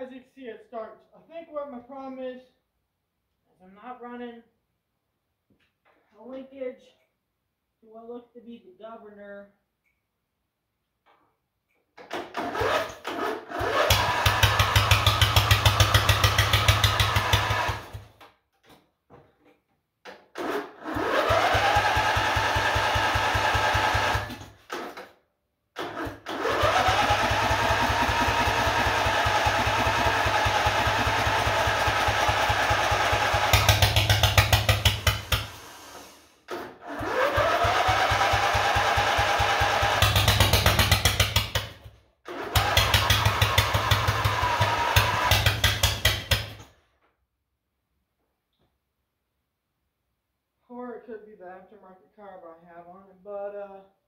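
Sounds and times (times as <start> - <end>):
mower engine starting and revving: 12.0 - 18.2, 20.2 - 25.2, 25.8 - 46.8.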